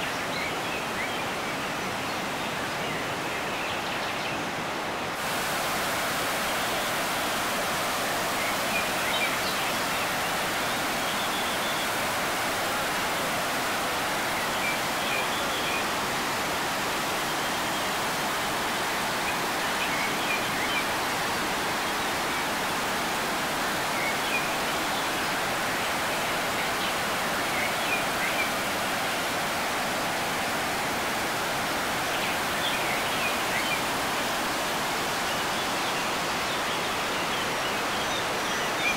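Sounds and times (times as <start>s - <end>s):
floodwater rushing over rocks: 5.2s - 17.3s.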